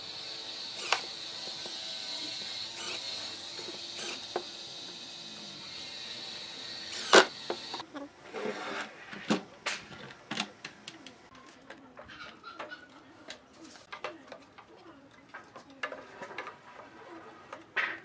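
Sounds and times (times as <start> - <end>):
cordless driver whining: 0.0 - 7.8.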